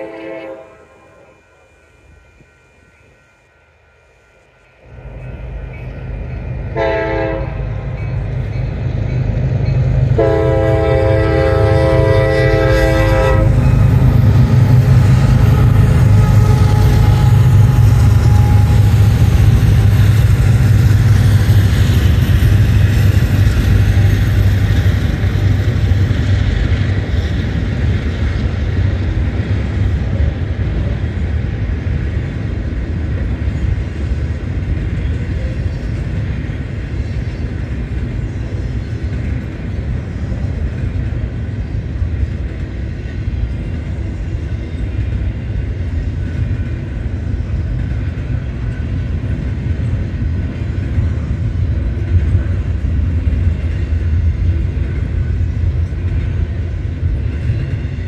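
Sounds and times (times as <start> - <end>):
train horn blasts: 0.0 - 1.7, 6.7 - 8.0, 10.1 - 20.0
diesel locomotives rumbling: 0.0 - 58.0.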